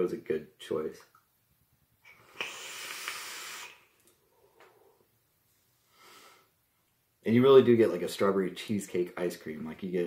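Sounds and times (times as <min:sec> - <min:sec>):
vape draw hiss: 0:02.1 - 0:04.0
soft breath out: 0:05.8 - 0:06.6.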